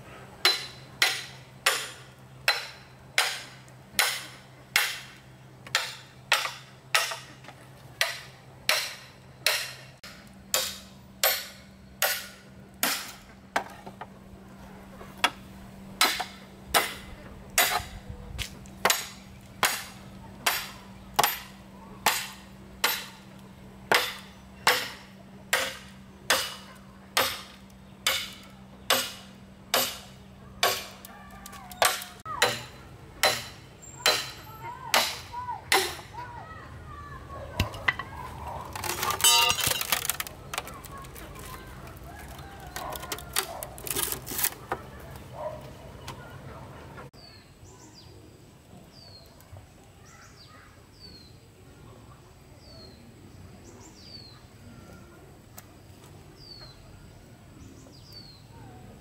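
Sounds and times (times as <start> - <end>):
machete chopping bamboo: 0.4 - 14.0, 16.0 - 23.2, 23.9 - 36.1, 37.6 - 44.8.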